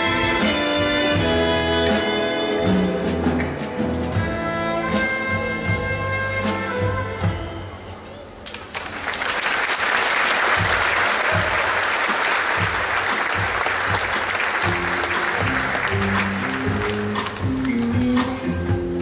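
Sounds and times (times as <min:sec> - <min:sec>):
circus music with drum beat: 0:00.0 - 0:08.4, 0:09.8 - 0:19.0
audience applauding: 0:08.4 - 0:18.2.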